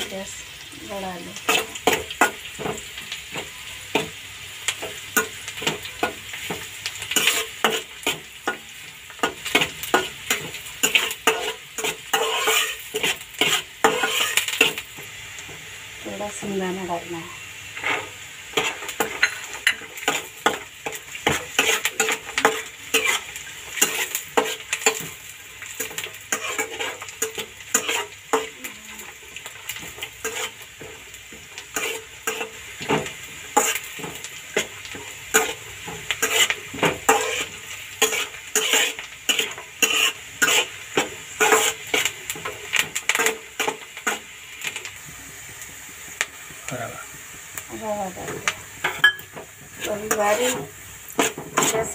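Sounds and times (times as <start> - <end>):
frying sizzle: 0.0 - 51.9
spatula scraping and tapping pan: 1.4 - 15.7, 17.8 - 51.9.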